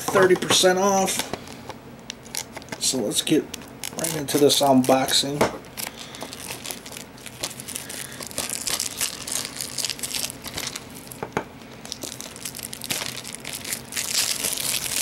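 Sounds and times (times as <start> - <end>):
plastic wrap crinkling and tearing: 3.6 - 15.0.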